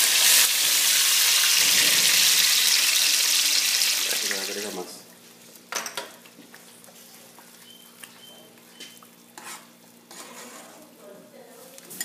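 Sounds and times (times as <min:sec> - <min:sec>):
sauce sizzling in a pan: 0:00.0 - 0:04.9
cookware knocks and clinks: 0:05.7 - 0:06.1.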